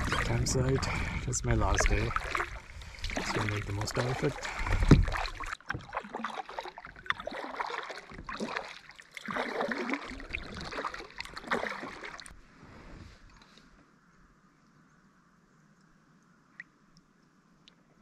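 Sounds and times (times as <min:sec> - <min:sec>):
kayak paddle splashing: 0:00.0 - 0:12.4.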